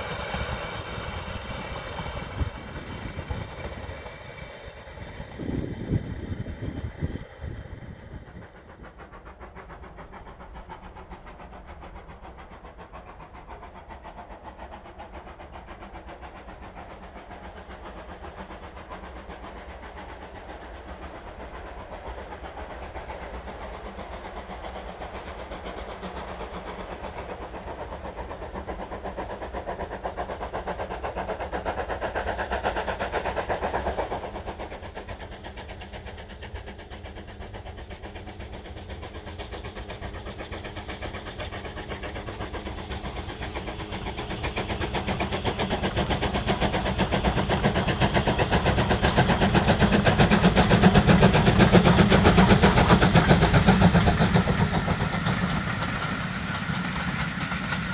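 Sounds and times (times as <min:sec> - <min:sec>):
steam locomotive exhaust: 0:00.0 - 0:57.9.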